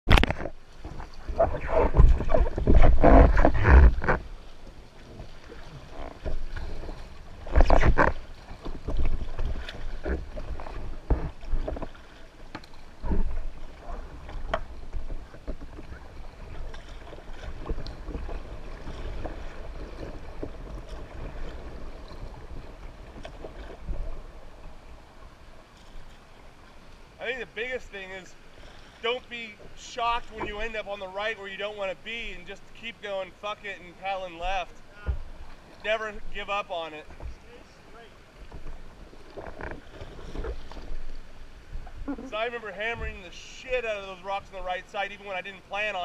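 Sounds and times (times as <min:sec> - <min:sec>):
river water splashing: 0:00.1 - 0:46.0.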